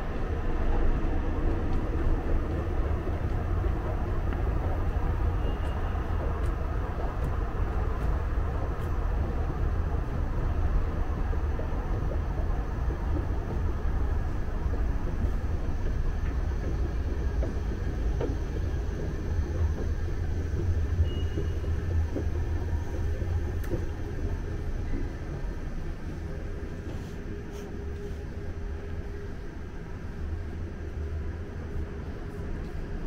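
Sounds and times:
escalator machinery rumble: 0.0 - 33.0
faint clicks: 23.6 - 23.9.

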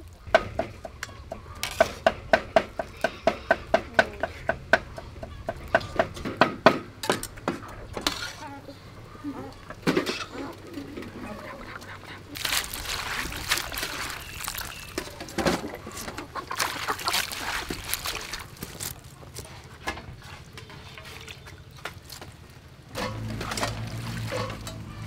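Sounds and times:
water dripping: 11.8 - 19.4, 20.9 - 25.0
water splashing in metal basin: 12.2 - 19.0, 20.6 - 25.0.

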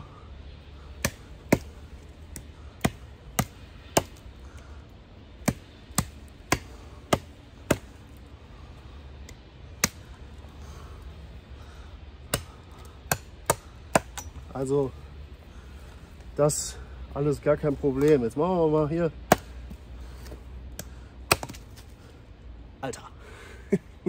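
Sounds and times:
knife chopping branch: 0.9 - 4.2, 5.4 - 8.0, 9.8 - 10.2, 12.3 - 14.4, 19.3 - 21.9.

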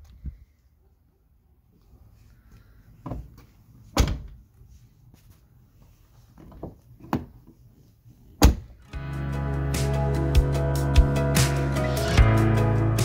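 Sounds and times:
music: 8.9 - 13.0.

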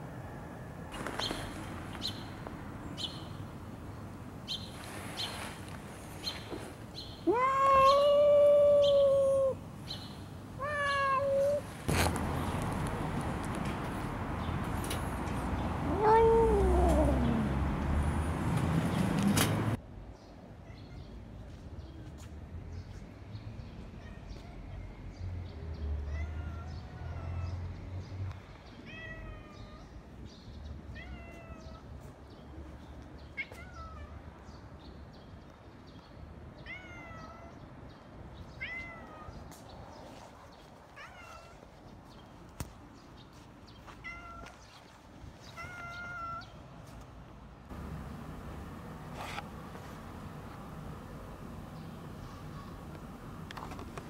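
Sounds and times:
cat meowing: 7.2 - 9.6, 10.6 - 11.6, 15.8 - 17.5, 26.1 - 27.5, 44.0 - 44.6, 45.6 - 46.5.

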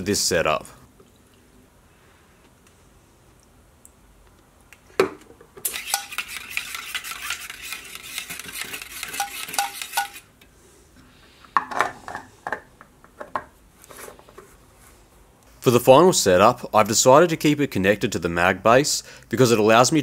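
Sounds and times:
metal rod stirring in plastic reservoir: 5.6 - 10.2.

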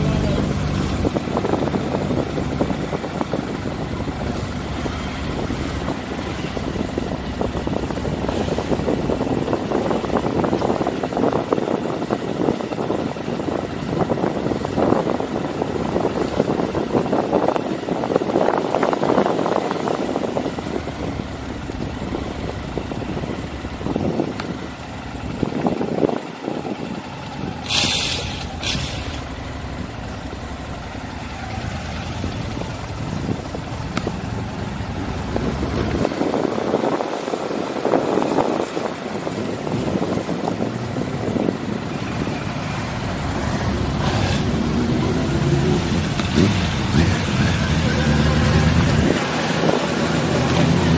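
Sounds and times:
motorcycle engine running: 0.0 - 50.9
brief hiss: 27.6 - 29.2.

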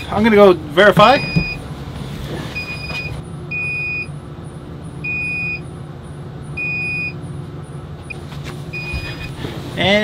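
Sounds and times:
electronic warning beeps: 1.1 - 1.7, 2.5 - 9.4.

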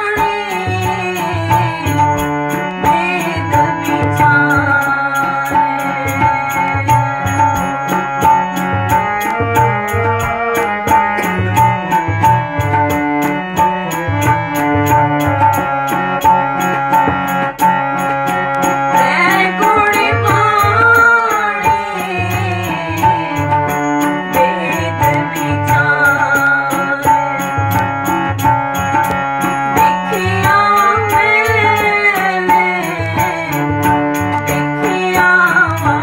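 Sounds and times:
woman singing: 0.0 - 8.4, 18.9 - 28.2, 29.8 - 36.0
harmonium chords: 0.0 - 36.0
tabla rhythm: 0.0 - 36.0.

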